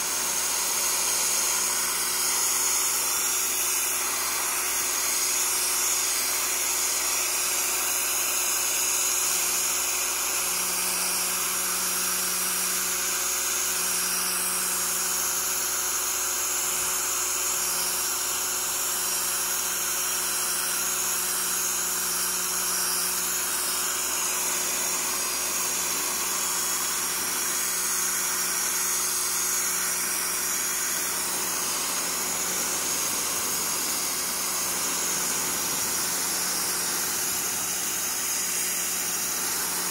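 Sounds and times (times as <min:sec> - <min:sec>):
pressure washer jet hissing: 0:00.0 - 0:07.4, 0:23.7 - 0:39.9.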